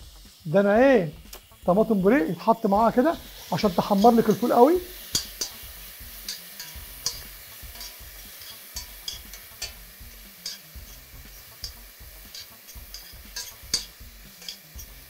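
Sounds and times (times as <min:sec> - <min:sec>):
food sizzling in a pan: 0:00.0 - 0:15.0
metal spoon scraping a pan: 0:03.2 - 0:15.0.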